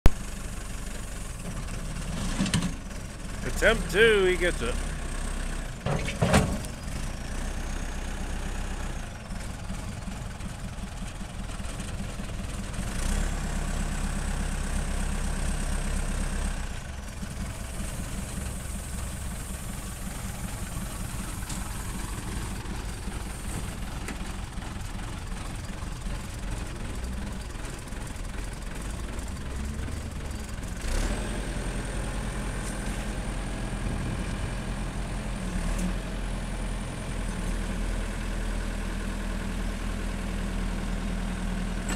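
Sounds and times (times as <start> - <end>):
diesel engine revving: 3.3 - 5.8, 12.5 - 25.0, 28.7 - 37.5.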